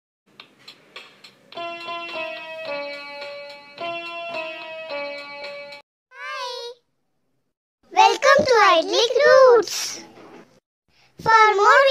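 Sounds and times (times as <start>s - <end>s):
instrumental jingle melody: 1.6s - 5.8s.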